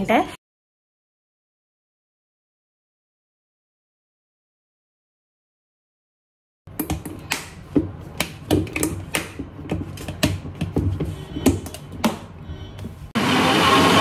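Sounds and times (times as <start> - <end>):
loud whirring motor: 13.2 - 14.0.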